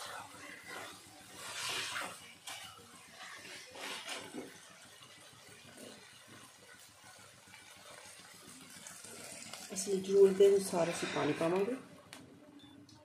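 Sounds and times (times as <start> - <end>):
spatula scraping a pan: 0.0 - 4.6, 10.5 - 11.8.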